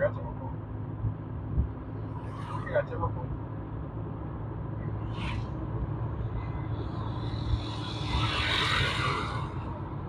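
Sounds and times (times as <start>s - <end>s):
car engine and road rumble: 0.0s - 10.0s
rush of noise: 1.4s - 4.0s, 4.6s - 10.0s.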